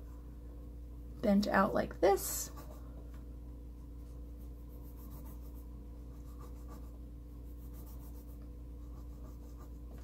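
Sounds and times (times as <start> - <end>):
low steady hum: 0.0 - 10.0
pencil scratching on paper: 2.4 - 2.8, 4.4 - 10.0.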